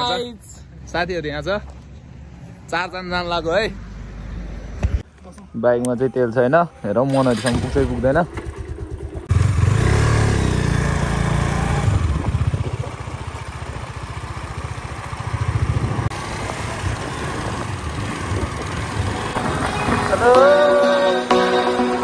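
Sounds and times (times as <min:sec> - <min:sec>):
motorcycle engine rumbling: 0:06.1 - 0:20.9
music: 0:19.4 - 0:22.0.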